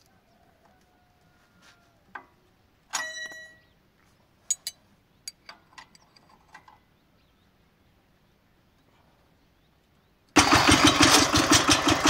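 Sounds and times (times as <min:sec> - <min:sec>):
metal ringing clink: 0:03.0 - 0:03.7, 0:04.5 - 0:04.8
metallic clicks and taps: 0:04.5 - 0:06.7.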